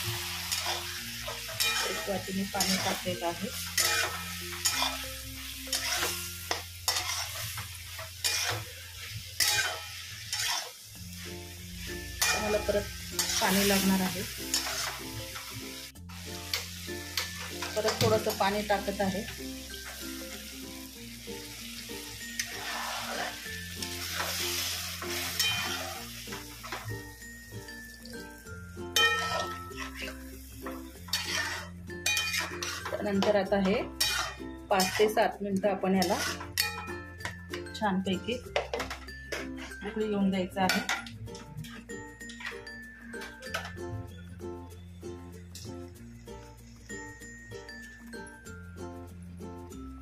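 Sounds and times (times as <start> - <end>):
water sizzling in a pan: 0.0 - 44.0, 45.1 - 50.0
spatula scraping a pan: 0.2 - 10.8, 12.2 - 15.5, 22.3 - 26.8, 29.0 - 35.2, 36.0 - 36.9, 38.7 - 40.0.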